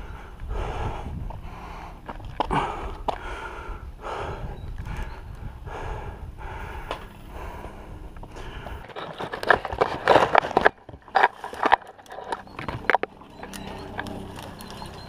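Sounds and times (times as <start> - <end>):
heavy breathing: 0.0 - 9.0
dry branches and leaves crackling: 7.4 - 15.0.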